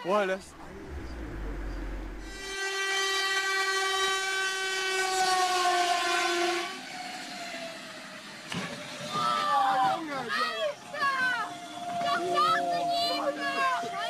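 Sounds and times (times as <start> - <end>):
train rushing past: 0.0 - 5.9
train horn: 2.3 - 7.5, 11.6 - 14.0.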